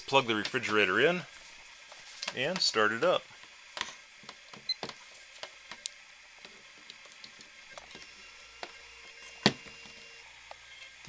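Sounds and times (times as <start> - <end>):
fridge compressor hum: 0.0 - 11.0.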